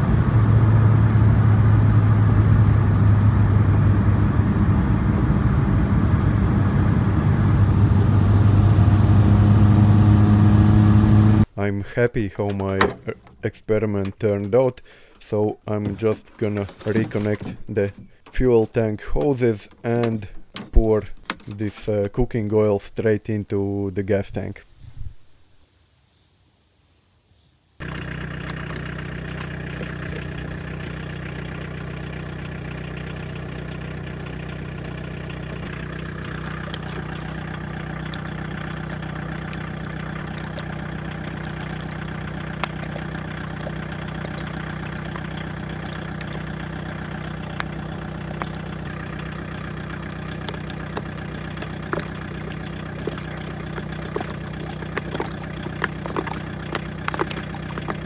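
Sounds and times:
diesel engine idling: 0.0 - 11.5, 27.8 - 58.0.

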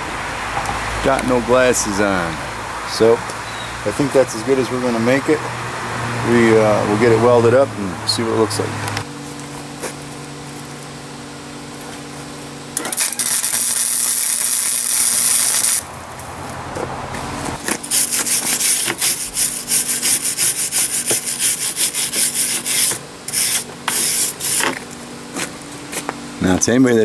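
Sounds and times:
steady hum: 0.0 - 27.0
welder crackling hiss: 12.8 - 15.8, 17.8 - 24.8
wire brush scrubbing metal: 17.6 - 24.8.

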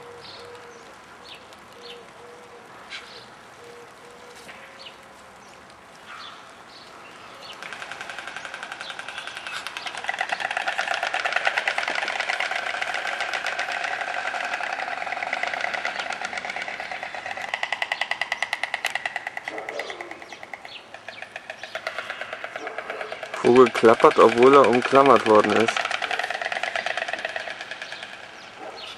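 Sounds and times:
stork bill-clattering: 7.6 - 28.9.

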